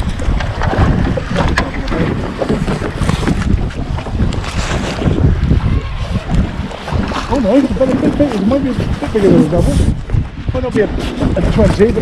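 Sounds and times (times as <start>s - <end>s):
waves slapping against boat hull: 0.0s - 12.0s
wind buffeting microphone: 0.0s - 12.0s.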